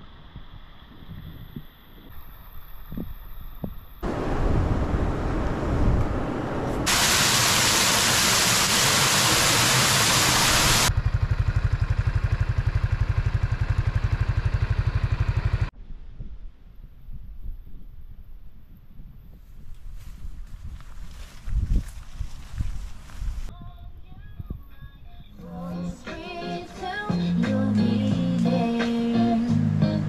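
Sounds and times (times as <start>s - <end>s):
faint outdoor sound: 0.0s - 30.0s
low rapid pulsing: 4.0s - 15.7s
water rushing over rocks: 6.8s - 10.9s.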